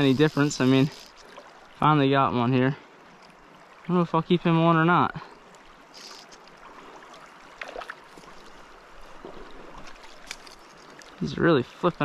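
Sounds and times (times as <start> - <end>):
faint ticks: 3.1 - 3.4.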